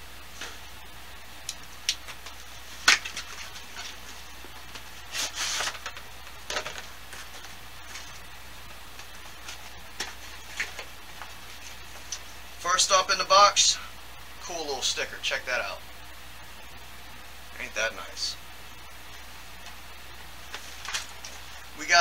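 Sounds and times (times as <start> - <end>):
scraping rustle: 5.0 - 6.0.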